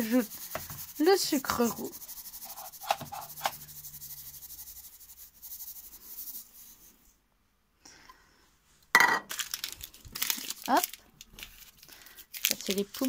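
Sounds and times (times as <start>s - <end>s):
sugar pouring hiss: 0.0s - 6.7s.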